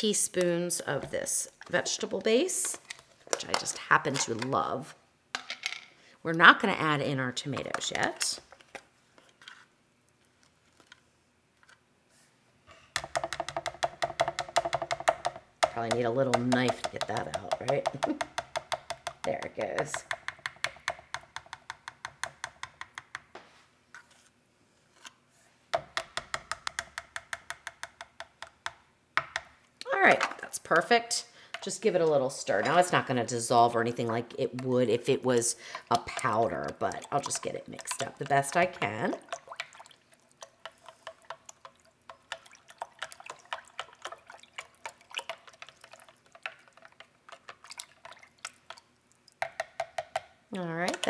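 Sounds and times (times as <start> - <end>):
liquid swishing: 34.0 - 49.6.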